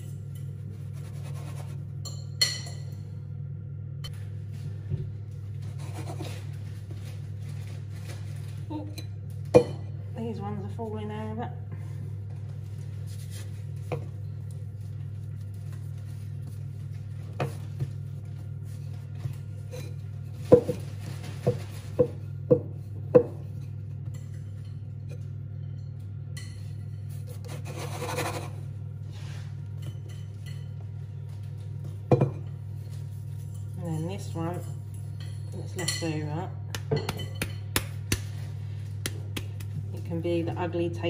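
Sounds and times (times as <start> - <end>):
rubbing and scraping of dough: 0.0 - 2.0, 5.5 - 8.7, 12.2 - 24.1, 26.8 - 35.0.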